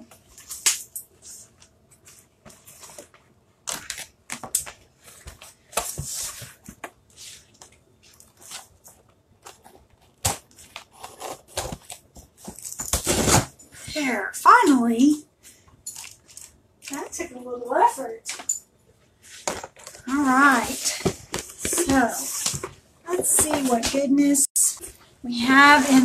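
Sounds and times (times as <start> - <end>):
cardboard and paper rustling: 1.2 - 13.5, 19.3 - 26.0.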